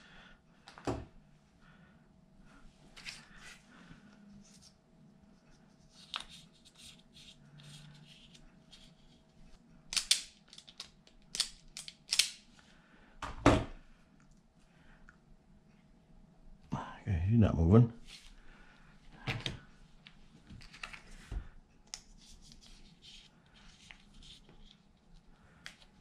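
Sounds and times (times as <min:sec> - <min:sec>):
hands handling cable and terminals: 0:05.9 - 0:09.2, 0:09.9 - 0:12.5, 0:19.1 - 0:26.0.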